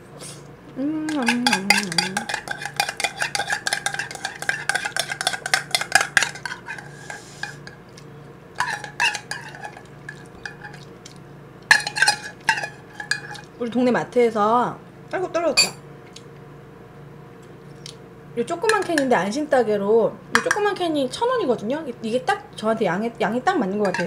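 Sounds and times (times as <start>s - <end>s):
metal spoon scraping a tin can: 1.2s - 7.7s, 8.6s - 10.8s.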